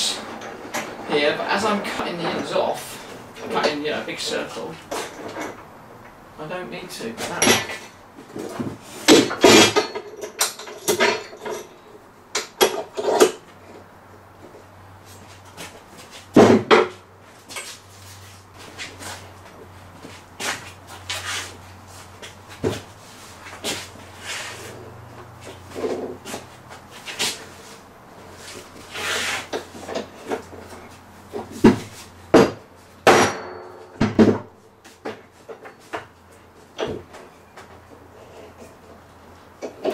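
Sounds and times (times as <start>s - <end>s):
steel clamps clanking: 7.2s - 8.0s, 9.0s - 13.4s
board scraping: 20.0s - 32.2s
wooden boards knocking: 31.4s - 34.5s.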